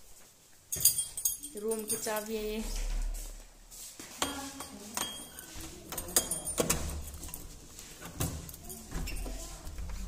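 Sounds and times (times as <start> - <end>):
keys jangling: 0.7 - 2.4, 5.2 - 7.6.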